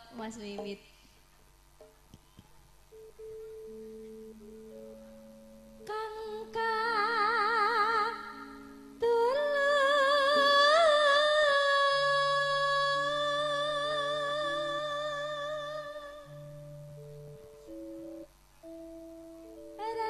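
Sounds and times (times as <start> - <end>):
soft held accompaniment notes: 2.9 - 20.0
woman singing with vibrato: 5.8 - 16.5, 19.8 - 20.0.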